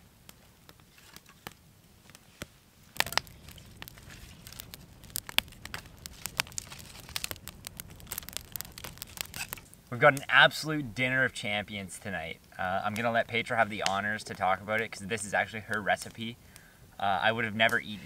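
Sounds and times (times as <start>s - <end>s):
campfire crackling and popping: 0.0s - 18.0s.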